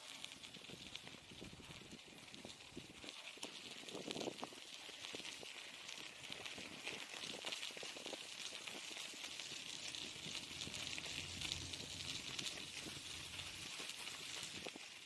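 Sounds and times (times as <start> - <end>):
bicycle tyres crunching on snow: 0.0 - 15.0
faint low rumble: 9.4 - 14.6.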